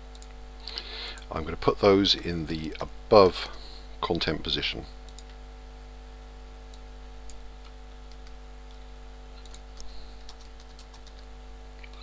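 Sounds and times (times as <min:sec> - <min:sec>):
electrical hum: 0:00.0 - 0:12.0
computer mouse clicks: 0:00.1 - 0:00.4, 0:05.0 - 0:05.4, 0:06.7 - 0:08.8, 0:09.4 - 0:12.0.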